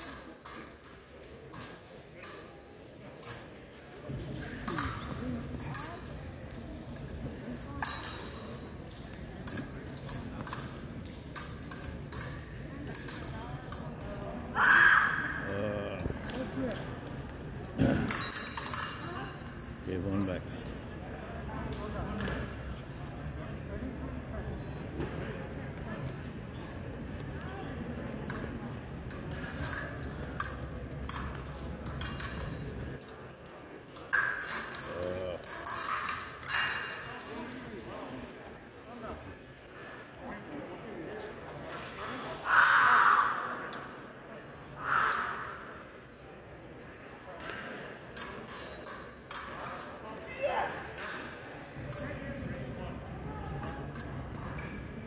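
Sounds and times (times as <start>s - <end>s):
fencing blades clashing: 0.0s - 21.0s, 28.2s - 38.1s, 47.4s - 52.3s
hum of a large hall: 0.0s - 55.0s.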